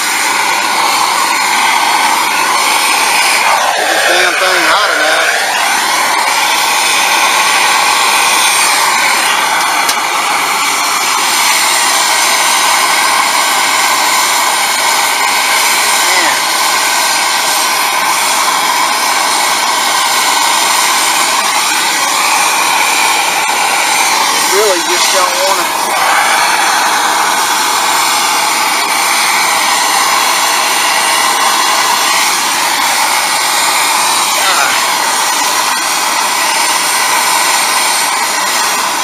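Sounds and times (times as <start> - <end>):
gas torch hissing: 0.0 - 39.0.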